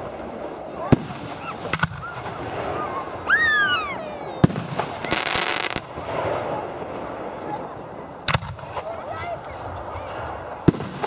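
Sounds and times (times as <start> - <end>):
fireworks bangs: 0.0 - 11.0
fireworks crackling: 0.0 - 11.0
high whoop falling in pitch: 2.8 - 4.2.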